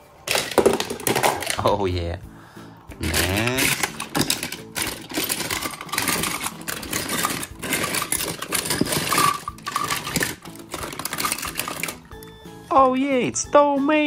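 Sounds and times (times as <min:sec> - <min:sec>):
toy cars clattering in plastic bin: 0:00.3 - 0:01.8, 0:03.0 - 0:12.2.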